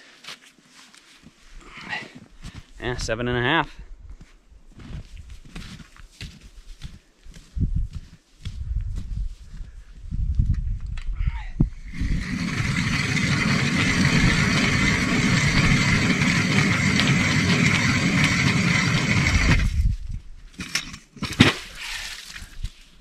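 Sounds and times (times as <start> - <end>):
ice auger grinding through ice: 11.8 - 19.9, 20.6 - 22.5.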